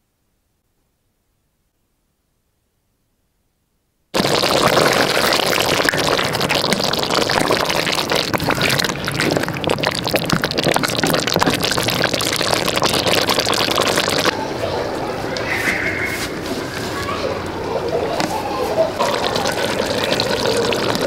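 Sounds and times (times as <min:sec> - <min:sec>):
ladle stirring: 0:04.2 - 0:14.3, 0:18.2 - 0:21.0.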